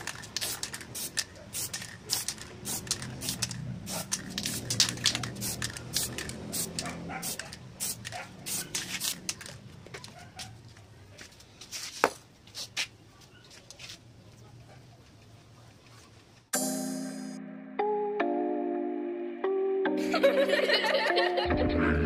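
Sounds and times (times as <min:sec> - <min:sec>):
spray can hissing bursts: 0:00.0 - 0:09.5.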